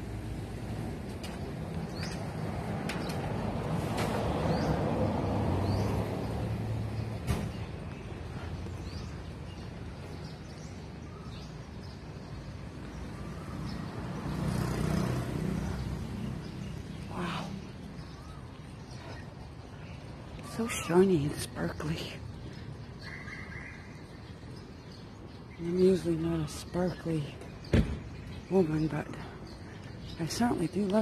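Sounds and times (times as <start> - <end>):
vehicle passing: 0.1 - 9.0, 13.1 - 22.2
bird chirps: 15.7 - 31.0.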